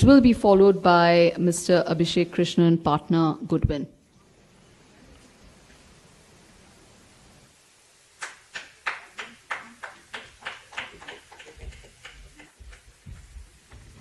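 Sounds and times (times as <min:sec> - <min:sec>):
footsteps on stage floor: 0:11.5 - 0:14.0.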